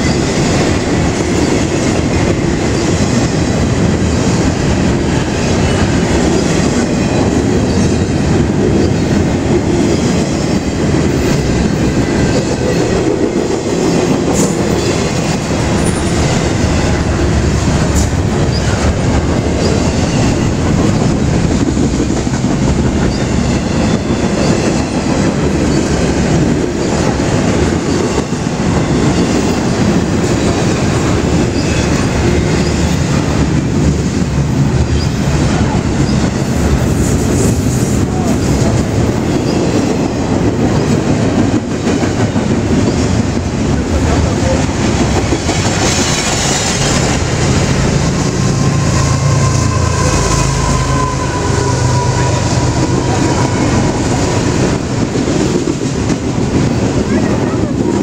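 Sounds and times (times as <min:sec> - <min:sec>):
train wheels rumbling on rails: 0:00.0 - 0:58.0
faint high wheel squeal: 0:48.6 - 0:54.2.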